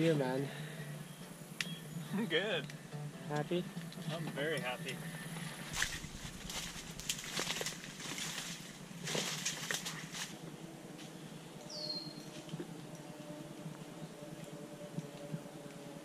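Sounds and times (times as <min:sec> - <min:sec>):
leaves and branches rustling: 0:03.7 - 0:16.0.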